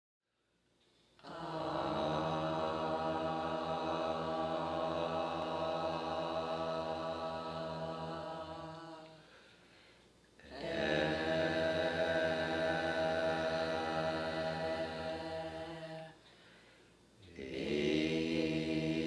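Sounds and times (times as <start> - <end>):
low chanted drone: 1.3 - 9.2, 10.4 - 16.2.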